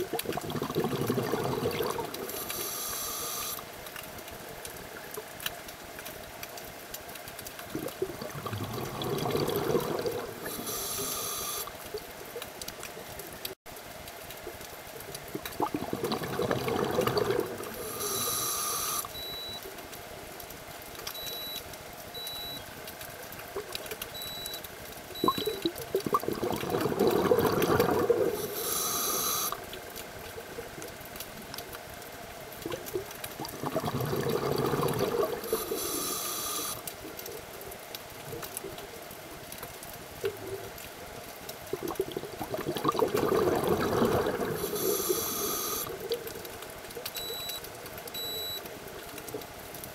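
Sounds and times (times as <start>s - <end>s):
exhaled bubbles rushing: 0.0s - 2.5s, 7.7s - 10.7s, 15.3s - 18.0s, 25.2s - 28.7s, 32.6s - 36.0s, 41.7s - 46.4s
regulator inhalation hiss: 2.3s - 3.6s, 10.5s - 11.7s, 17.8s - 19.1s, 28.4s - 29.6s, 35.4s - 36.8s, 44.6s - 45.9s.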